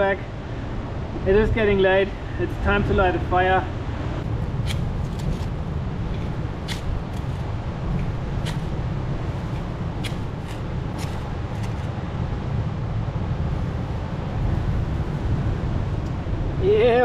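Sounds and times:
wind rumble on microphone: 0:00.0 - 0:17.0
campfire snaps and crackles: 0:04.2 - 0:12.0.

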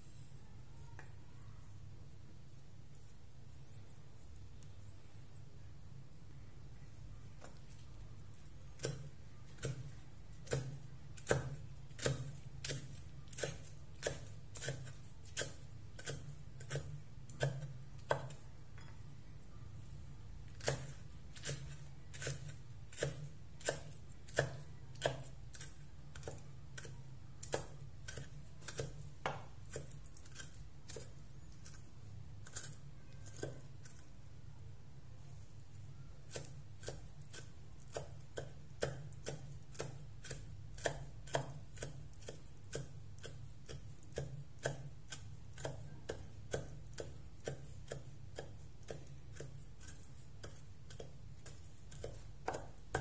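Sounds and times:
cleaver chopping on wooden board: 0:51.9 - 0:53.0.

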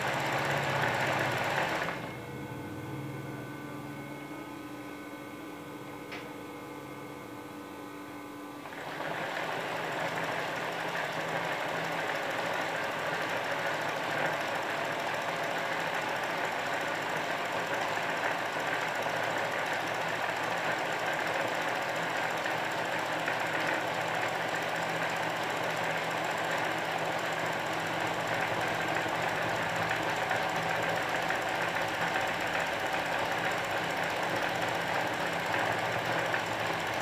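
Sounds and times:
sewing machine stitching: 0:00.0 - 0:02.1, 0:08.6 - 0:37.0
steady hum: 0:00.0 - 0:08.8.

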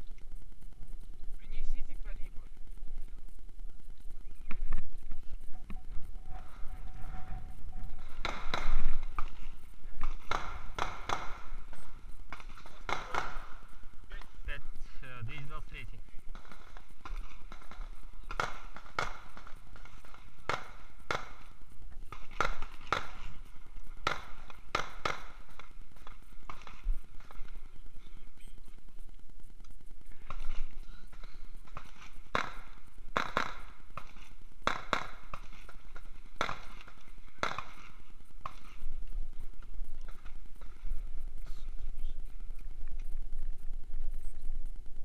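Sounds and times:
sharp knocks or cracks: 0:10.0 - 0:11.4.

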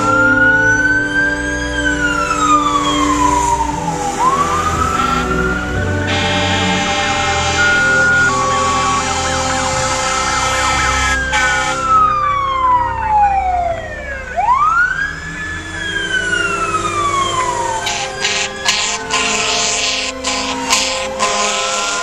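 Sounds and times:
electronic siren warbling: 0:00.0 - 0:22.0
truck engines running: 0:00.0 - 0:22.0
mechanical siren winding: 0:17.3 - 0:22.0.

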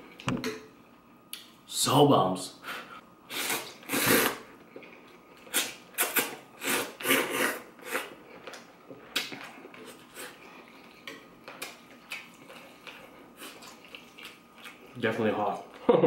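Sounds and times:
slurping noodles: 0:03.3 - 0:04.5, 0:05.5 - 0:08.2
soft eating sounds: 0:03.3 - 0:15.9.

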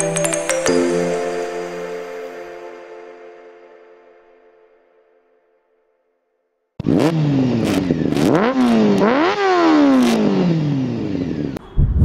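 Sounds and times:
motorcycle engine revving: 0:06.8 - 0:11.6.

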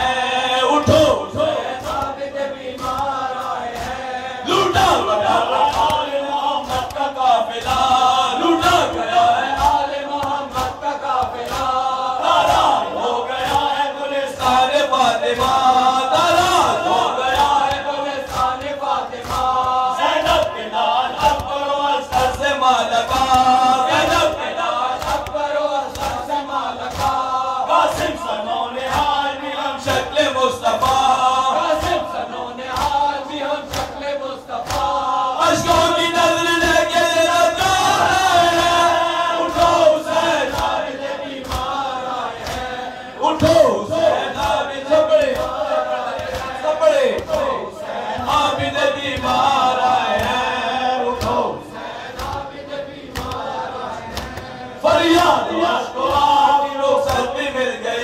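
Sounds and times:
men chanting over microphone: 0:00.0 - 0:58.0
rhythmic chest striking: 0:00.0 - 0:58.0.

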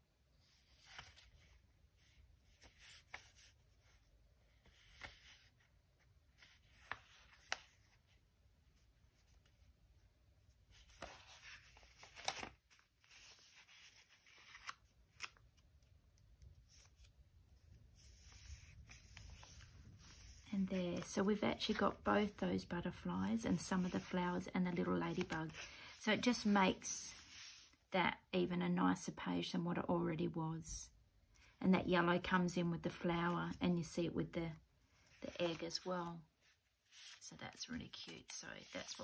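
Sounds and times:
paper being folded and creased: 0:00.5 - 0:22.4, 0:23.3 - 0:25.8, 0:35.0 - 0:37.2
paper rustle: 0:10.6 - 0:15.8, 0:16.6 - 0:22.4, 0:23.3 - 0:27.7.

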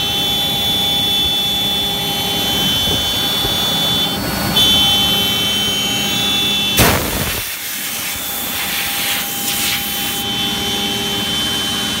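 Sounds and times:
router spindle whine: 0:00.0 - 0:12.0
bit cutting wood hiss: 0:06.8 - 0:10.2
loud rush: 0:06.8 - 0:10.2.

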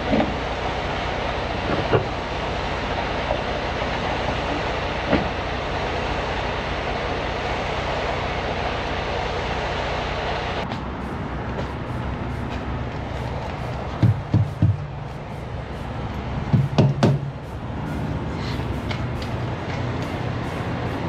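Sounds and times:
truck road and engine rumble: 0:00.0 - 0:21.0.

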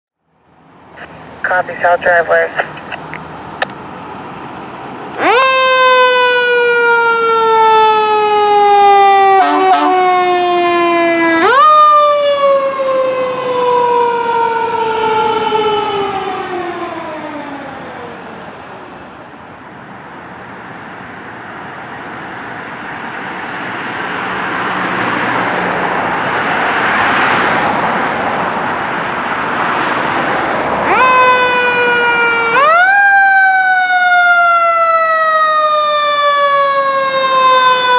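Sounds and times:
truck passing on road: 0:00.3 - 0:37.9
mechanical siren wailing: 0:05.2 - 0:18.2, 0:30.9 - 0:37.9.

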